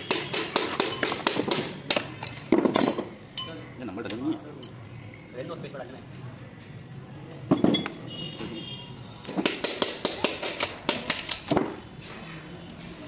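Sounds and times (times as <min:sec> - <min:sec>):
metal engine parts knocking: 0:00.0 - 0:03.5, 0:09.3 - 0:11.7.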